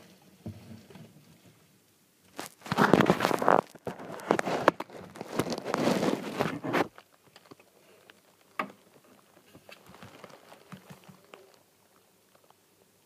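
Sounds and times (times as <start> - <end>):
log scraping on wood shavings: 2.4 - 7.0.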